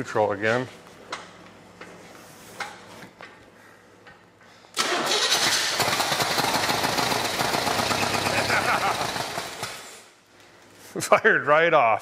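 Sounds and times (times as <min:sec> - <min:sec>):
engine starting and running: 0:04.8 - 0:10.1.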